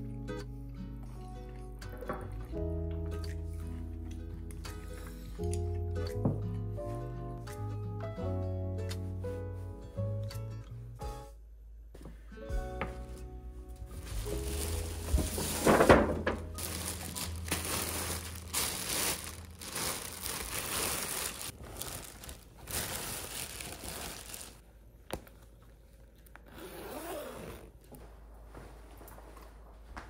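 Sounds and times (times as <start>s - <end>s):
plastic wrapping crinkling: 13.9s - 24.6s.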